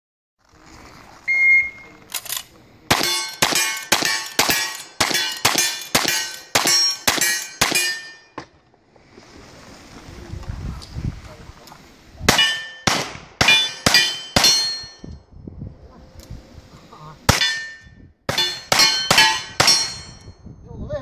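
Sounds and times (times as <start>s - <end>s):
electronic timer beep: 1.3s - 1.9s
rifle shots: 2.9s - 7.9s, 12.3s - 14.8s
steel target ringing clang: 2.9s - 8.4s, 12.3s - 15.1s, 17.3s - 20.4s.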